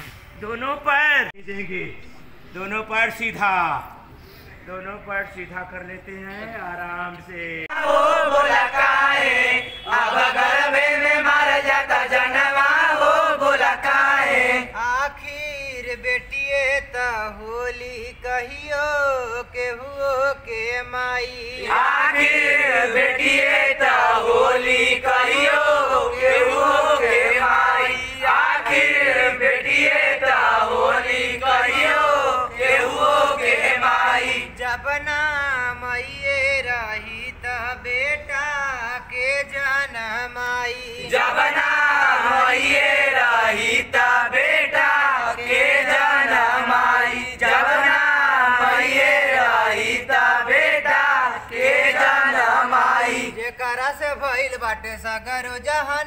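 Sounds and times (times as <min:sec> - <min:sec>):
men chanting in unison: 0:07.6 - 0:15.2, 0:18.7 - 0:36.4, 0:39.0 - 0:53.5.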